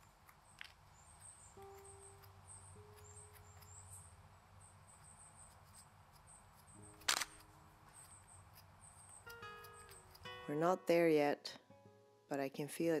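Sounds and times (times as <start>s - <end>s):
soft sustained music notes: 1.4s - 4.1s, 9.1s - 12.9s
sharp scratchy rustle: 7.0s - 8.2s.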